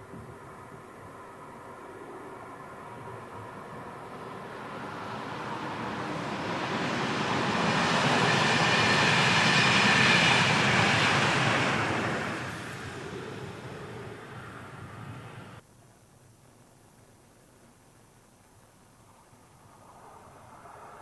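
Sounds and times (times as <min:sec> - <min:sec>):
train passing: 0:00.0 - 0:15.6.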